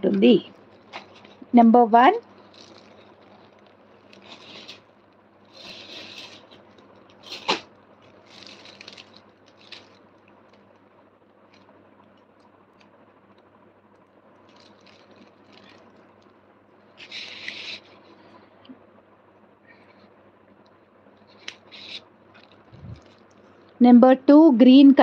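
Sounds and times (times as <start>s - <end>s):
low steady hum: 0.0s - 25.0s
handling rustles and scrapes: 0.2s - 1.5s, 2.2s - 10.7s, 16.9s - 18.6s, 21.2s - 23.6s.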